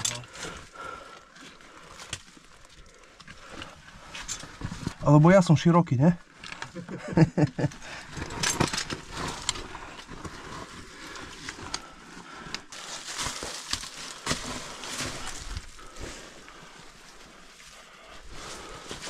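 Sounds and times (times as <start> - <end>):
stones knocking and crunching: 1.5 - 5.0, 6.4 - 16.0
clothing scraping against rock: 8.0 - 17.1.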